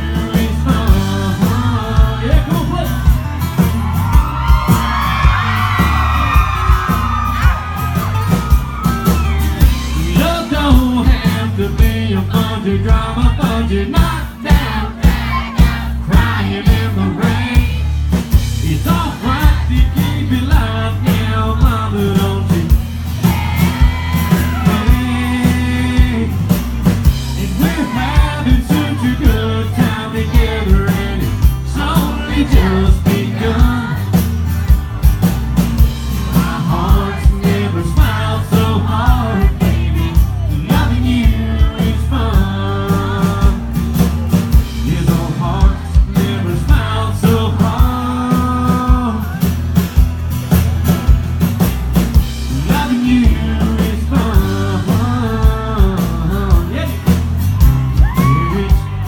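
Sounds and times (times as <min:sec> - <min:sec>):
man singing: 0:00.0 - 0:03.2, 0:09.6 - 0:34.3, 0:36.2 - 0:43.8, 0:44.5 - 0:49.6, 0:52.4 - 0:57.2, 0:57.9 - 0:59.0
live country band playing: 0:00.0 - 0:59.0.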